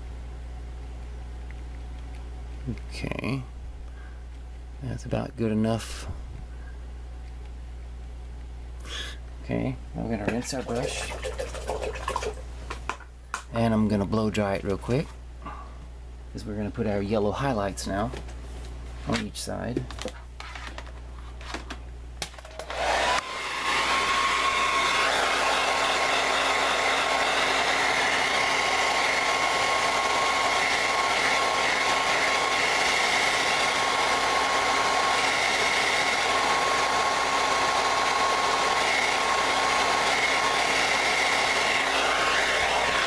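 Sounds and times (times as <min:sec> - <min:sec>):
hair dryer blowing: 0:10.3 - 0:12.4, 0:22.4 - 0:43.0.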